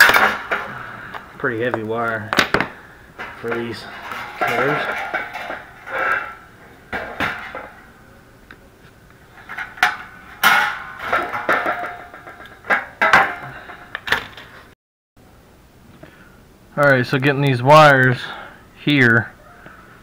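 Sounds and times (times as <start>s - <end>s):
sheet metal clanking and rattling: 0.0s - 1.7s, 2.3s - 8.0s, 9.3s - 14.6s.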